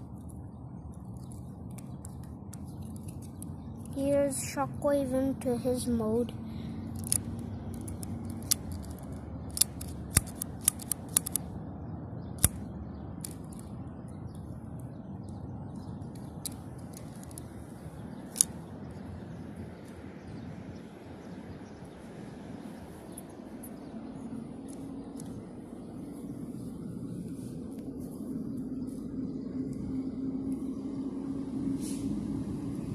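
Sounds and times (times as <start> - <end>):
plastic toy parts clicking: 1.2 - 4.0, 6.9 - 11.5, 12.4 - 13.7, 16.1 - 17.5, 18.3 - 18.6.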